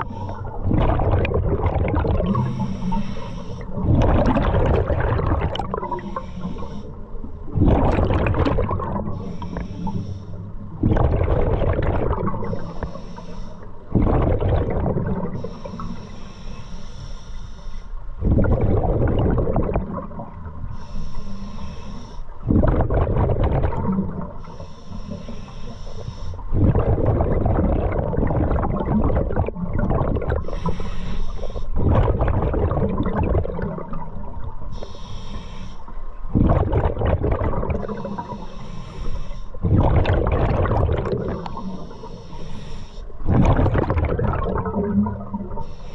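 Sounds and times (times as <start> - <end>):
exhaled bubbles rumbling: 0.0 - 9.7, 10.5 - 13.0, 13.7 - 15.9, 18.2 - 20.8, 22.4 - 25.2, 26.4 - 30.8, 31.7 - 34.9, 36.1 - 42.2, 43.1 - 45.9
diver breathing through regulator: 2.2 - 3.8, 5.7 - 7.2, 9.1 - 10.7, 12.4 - 13.9, 15.2 - 18.0, 20.7 - 22.4, 24.3 - 26.6, 30.4 - 31.8, 34.7 - 36.0, 37.7 - 39.8, 41.1 - 43.4, 45.6 - 45.9.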